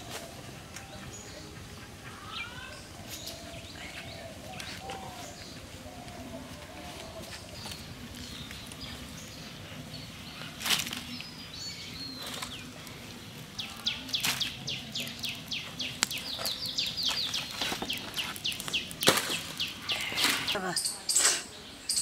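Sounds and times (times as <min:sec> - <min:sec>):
twigs and leaves rustling: 0:00.0 - 0:21.5
sharp twig snaps: 0:14.1 - 0:14.6, 0:15.2 - 0:20.5.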